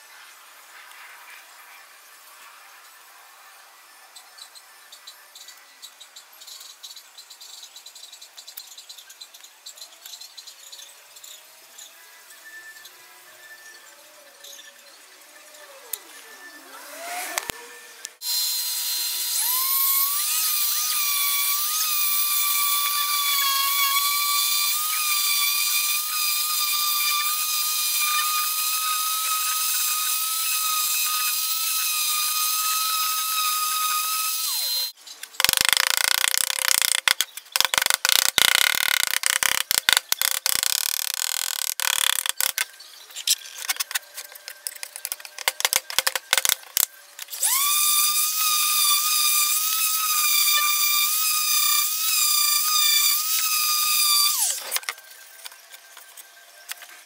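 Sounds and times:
power tool high whine: 10.6 - 35.0, 43.8 - 57.0
rapid irregular clicks and scrapes: 35.2 - 47.5.

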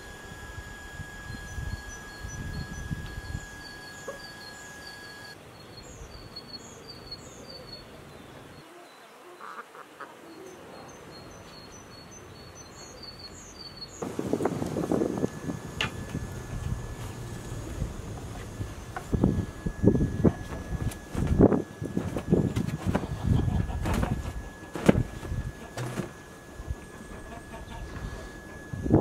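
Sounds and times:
chickens feeding: 14.0 - 28.8.

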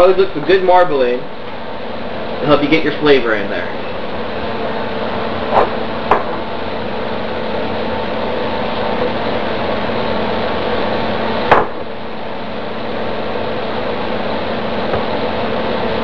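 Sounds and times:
sharp knocks: 5.5 - 6.4, 11.5 - 11.8.

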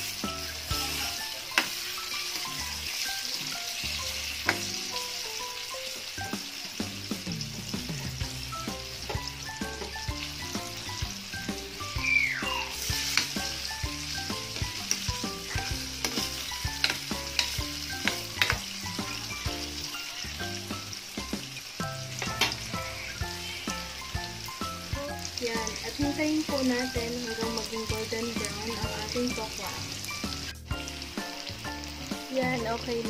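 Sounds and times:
food sizzling in hot oil: 0.0 - 33.0
spatula stirring in a wok: 12.7 - 21.4.

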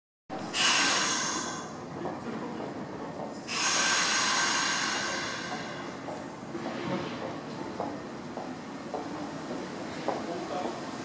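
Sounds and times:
train brakes hissing: 0.4 - 1.8, 3.4 - 6.1
train running rumble: 0.4 - 11.0.

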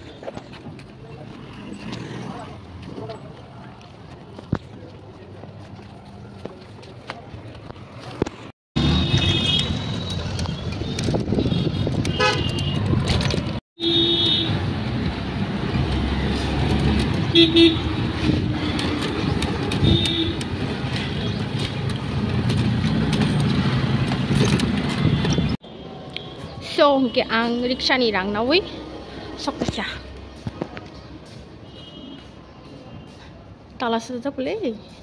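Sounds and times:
engine and road noise: 0.0 - 35.0
vehicle horns tooting: 8.8 - 10.1, 10.7 - 13.0, 13.8 - 14.6, 17.3 - 17.9, 19.7 - 20.5.

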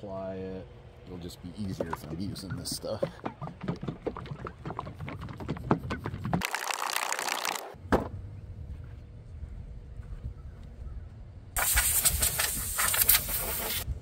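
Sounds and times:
spray hiss: 11.6 - 13.9.

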